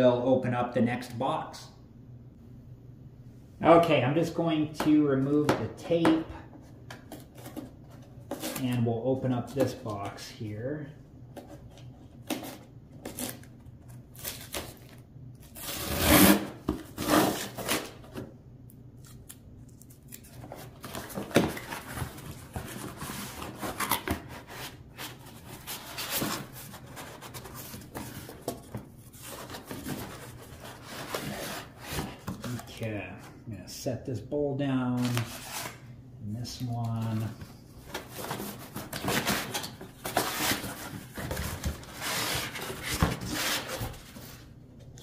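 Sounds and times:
cardboard rubbing and rustling: 0:20.3 - 0:32.7, 0:37.9 - 0:44.5.

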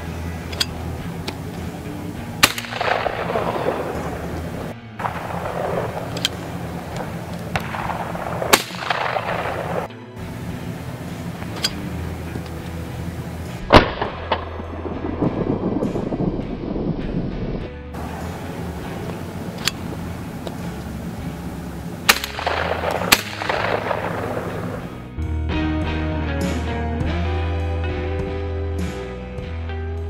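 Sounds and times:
shotgun shots with echo: 0:02.4 - 0:09.9, 0:13.7 - 0:16.1, 0:22.1 - 0:25.0.

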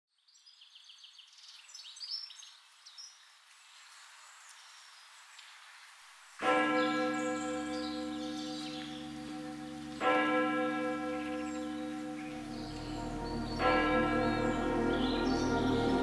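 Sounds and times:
faint birds chirping: 0:00.2 - 0:10.3, 0:11.1 - 0:16.0
church bell ringing: 0:06.4 - 0:16.0.

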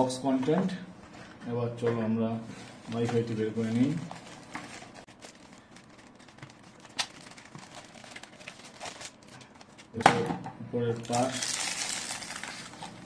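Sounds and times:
plastic bag rustling and crinkling: 0:02.5 - 0:10.0, 0:10.9 - 0:13.0.

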